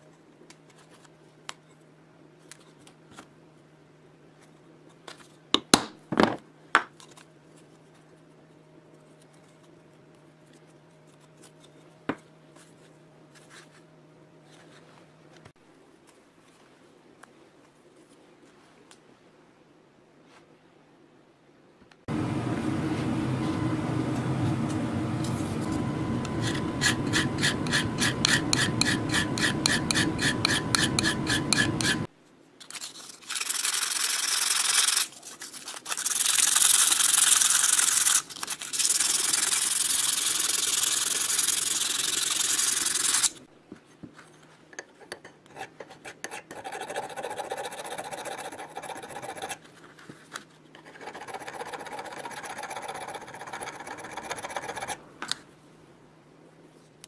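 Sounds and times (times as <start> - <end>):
mechanical hum: 0.0 - 57.0
file rasping on steel: 26.3 - 32.1, 45.5 - 49.6, 50.8 - 55.0.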